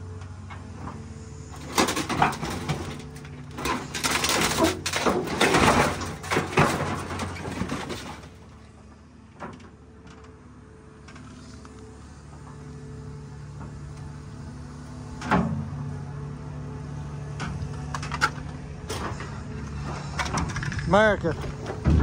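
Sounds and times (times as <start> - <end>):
excavator engine hum: 0.0 - 22.0
metal crunching and cracking: 0.5 - 10.2, 17.4 - 22.0.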